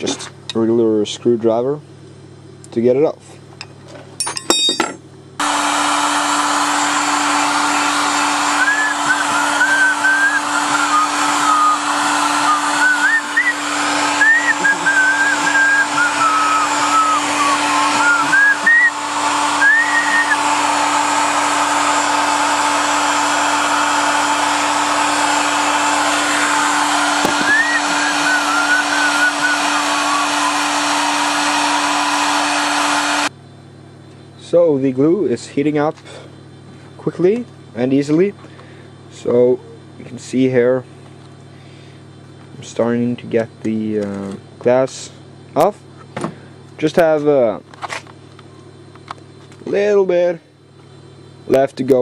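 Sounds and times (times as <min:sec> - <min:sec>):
heat gun blowing: 0:05.4 - 0:33.3
person whistling a tune: 0:08.6 - 0:19.0, 0:19.6 - 0:20.4, 0:27.4 - 0:30.6.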